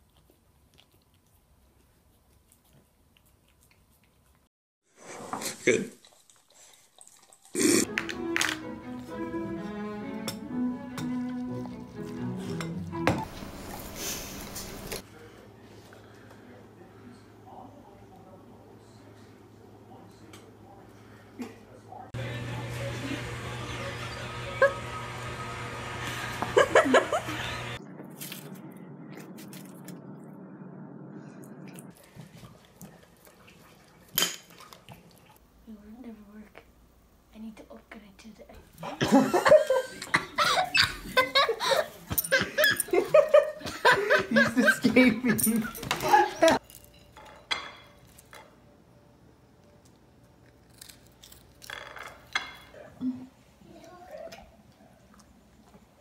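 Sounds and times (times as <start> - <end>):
crackers crunching: 27.9 - 30.1, 49.7 - 52.3.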